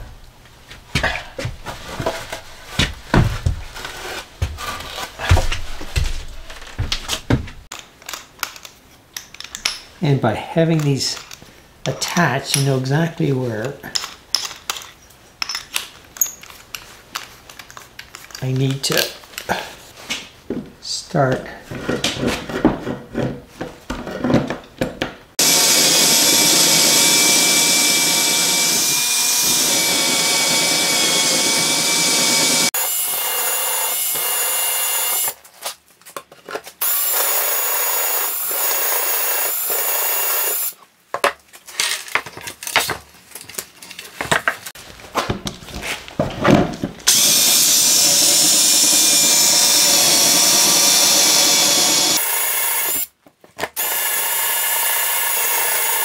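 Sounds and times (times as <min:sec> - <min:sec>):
cordless drill whining: 0:25.4 - 0:35.4, 0:36.8 - 0:40.8, 0:47.1 - 0:53.1, 0:53.8 - 0:56.0
drill knocking and scraping: 0:25.4 - 0:35.4, 0:36.8 - 0:40.8, 0:47.1 - 0:53.1, 0:53.8 - 0:56.0.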